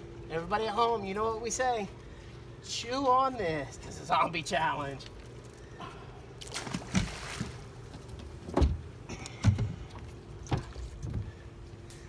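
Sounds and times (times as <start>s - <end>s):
faint steady hum: 0.0s - 12.0s
thumps on boat deck: 8.4s - 8.8s.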